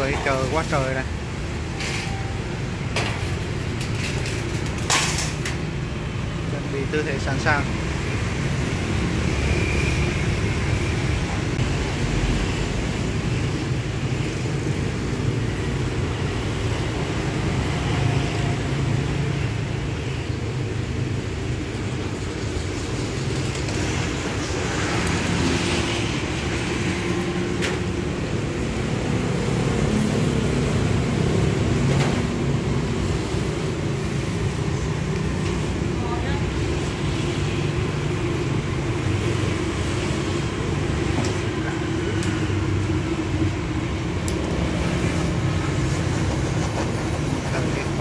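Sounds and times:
traffic rumble: 0.0 - 48.0.

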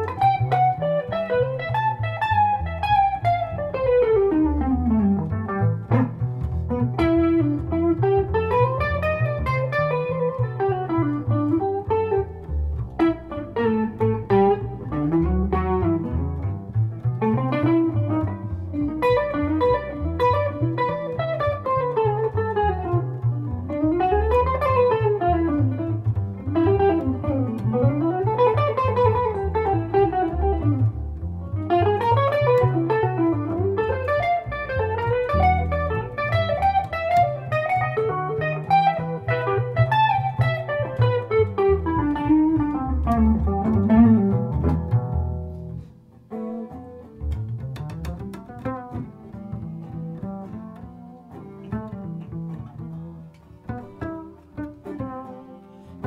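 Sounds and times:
double bass notes: 0.0 - 56.0
jazz electric guitar melody: 0.0 - 56.0.

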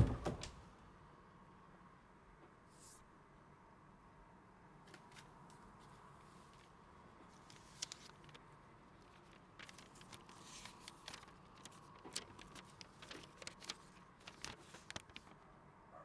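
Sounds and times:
paper crackling and rustling: 4.9 - 15.4.

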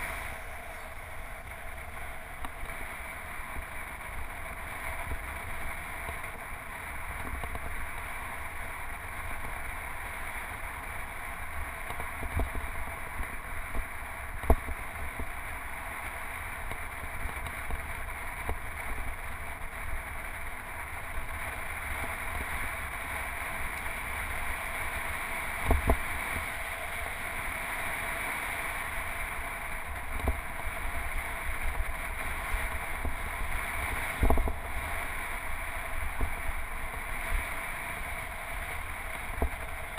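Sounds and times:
wind rush: 0.0 - 2.2
bicycle tyre noise: 0.0 - 39.9.

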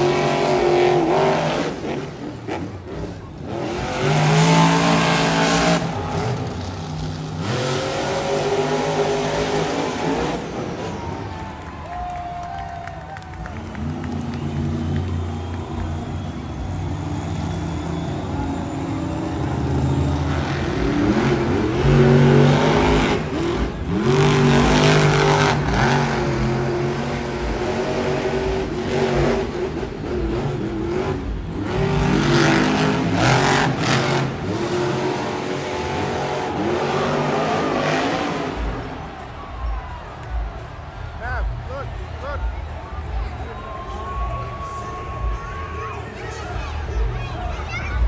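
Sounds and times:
truck engine revving hard: 0.0 - 11.2, 13.6 - 39.2.

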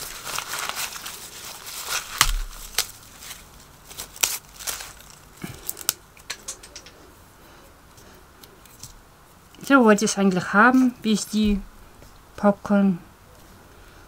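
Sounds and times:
husks crackling and rustling: 0.0 - 7.1.

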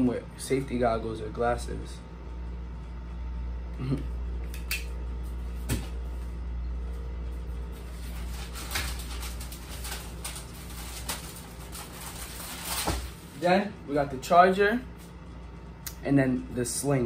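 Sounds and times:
steady low hum: 0.0 - 17.0
rummaging in cardboard box: 7.9 - 13.3.

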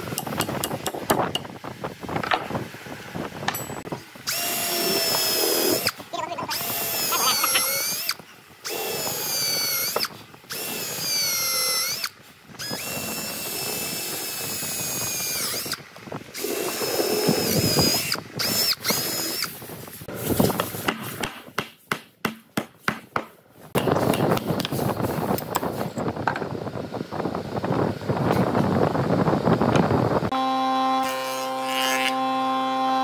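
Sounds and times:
cordless drill boring into wood: 4.2 - 19.6.

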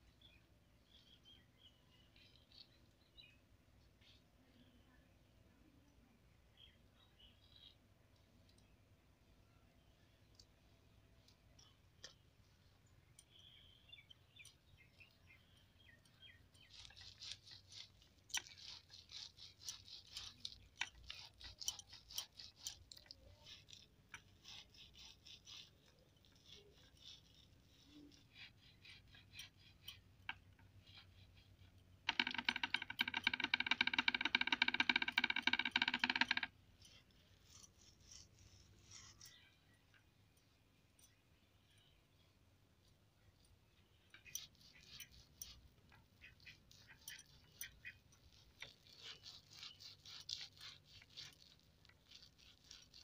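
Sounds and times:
fruit rubbing on woven cot: 16.4 - 39.9, 42.8 - 53.0.

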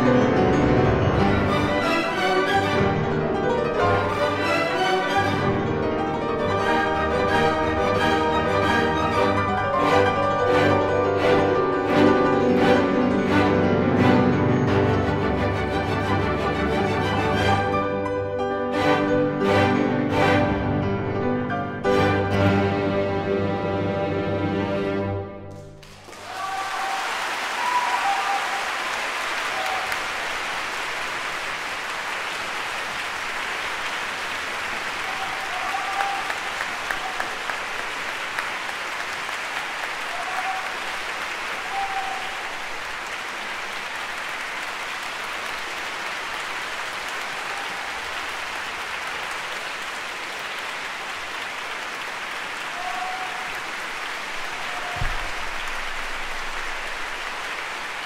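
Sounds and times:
audience applauding: 1.2 - 17.9, 25.4 - 58.0
low thump: 55.0 - 55.6.

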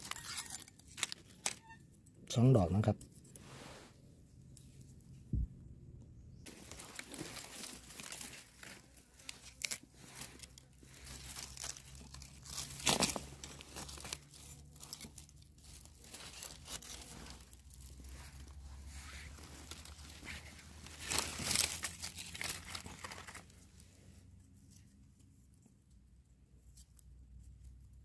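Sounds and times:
leaves crunching: 6.5 - 23.6
dry leaves rustling and crackling: 6.5 - 23.8.

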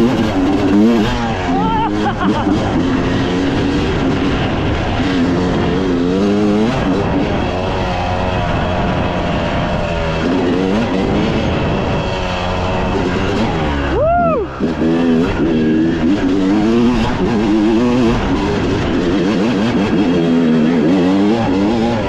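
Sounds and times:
off-road engine revving: 0.0 - 22.0.

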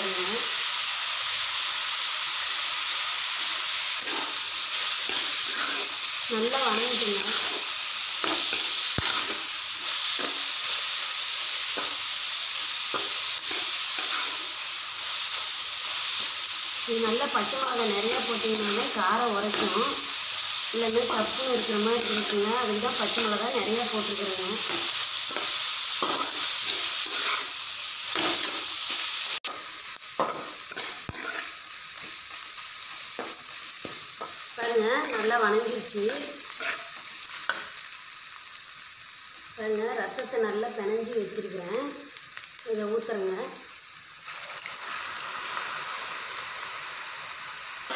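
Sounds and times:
vegetables sizzling in oil: 0.0 - 47.9
spatula scraping a pan: 4.0 - 6.0, 24.5 - 27.5, 28.1 - 31.6, 36.5 - 37.6.

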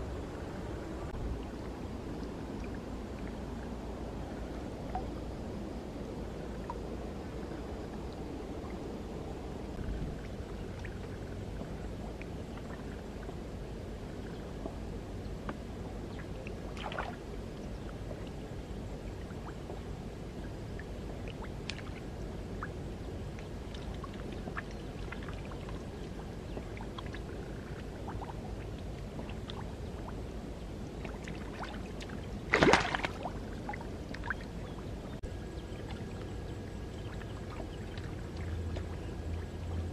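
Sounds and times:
small drips and clicks: 10.2 - 13.4, 14.2 - 17.2, 19.2 - 30.2, 31.0 - 35.2, 35.8 - 39.9
marsh water sloshing: 16.1 - 17.3, 20.5 - 39.9
loud splash: 32.5 - 33.3.

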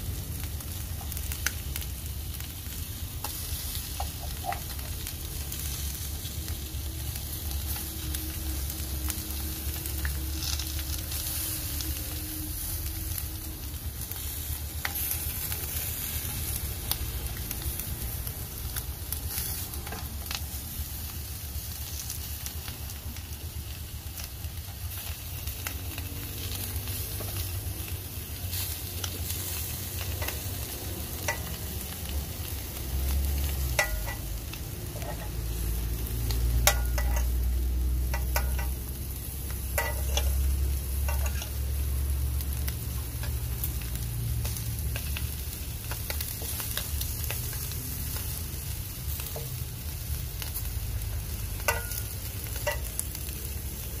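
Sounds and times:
fish sizzling on a grill pan: 0.0 - 54.0.

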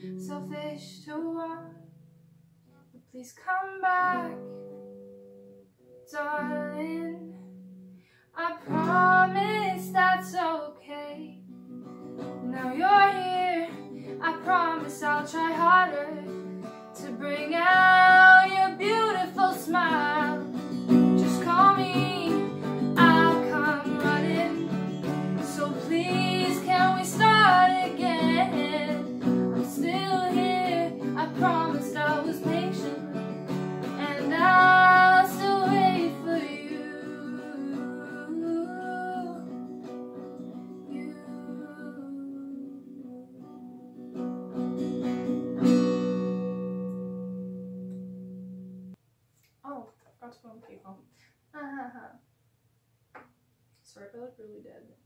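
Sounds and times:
woman singing: 0.0 - 1.8, 3.0 - 4.7, 6.1 - 7.4, 8.4 - 11.4, 12.4 - 33.2, 33.9 - 39.8, 40.7 - 43.7
acoustic guitar strumming: 4.1 - 8.0, 11.2 - 41.0, 42.9 - 49.0.

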